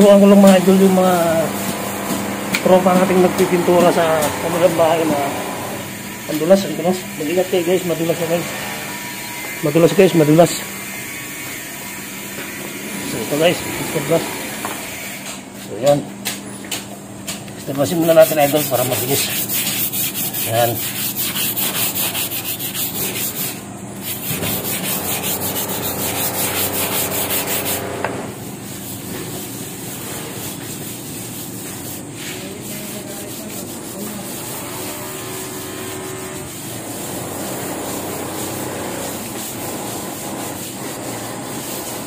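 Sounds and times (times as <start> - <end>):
brush scrubbing wet tiles: 0.1 - 1.8, 17.6 - 27.8, 28.4 - 42.0.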